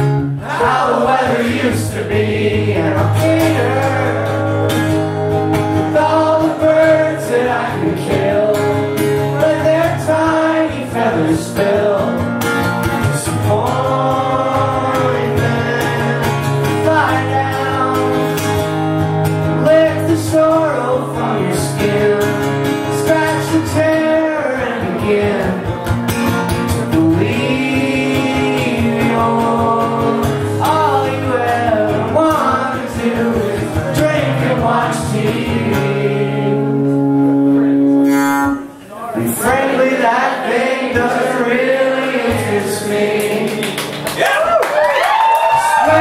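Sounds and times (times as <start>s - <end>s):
acoustic guitar strumming: 0.0s - 44.2s
man singing: 0.6s - 5.0s, 5.8s - 12.4s, 13.0s - 18.6s, 19.5s - 25.8s, 26.6s - 37.9s, 39.2s - 43.6s, 45.5s - 46.0s.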